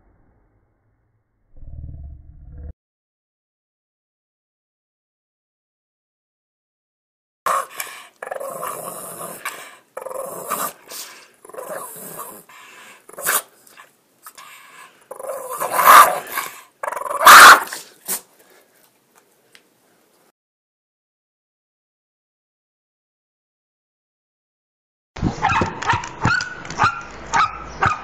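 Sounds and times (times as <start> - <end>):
dog growling and grumbling: 7.5 - 12.5, 15.1 - 17.7.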